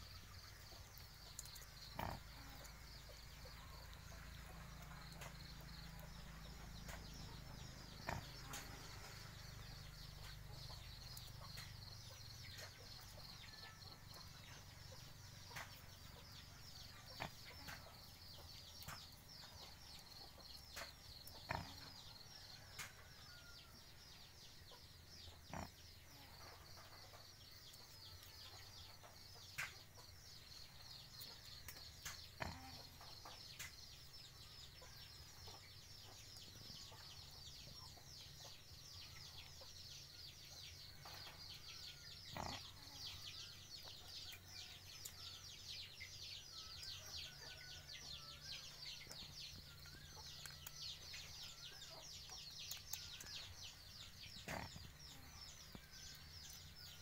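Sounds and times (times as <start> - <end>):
faint high chirping: 0.0 - 57.0.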